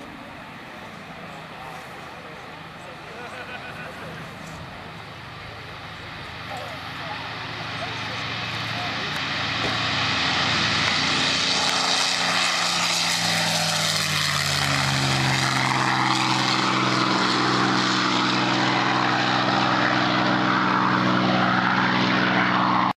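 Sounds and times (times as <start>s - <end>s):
propeller plane engine passing: 0.0s - 23.0s.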